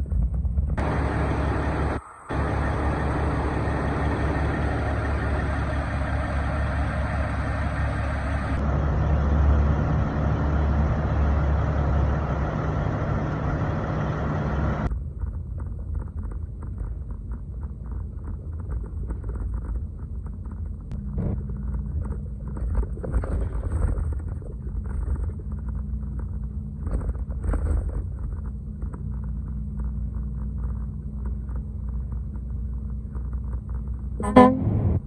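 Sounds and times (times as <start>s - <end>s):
truck cab road drone: 0.0s - 35.0s
truck diesel engine idling: 0.8s - 14.9s.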